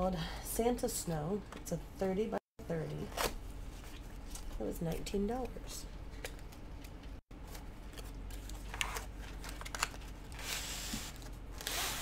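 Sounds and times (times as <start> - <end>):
packaging clicks and rustles: 7.8 - 10.4.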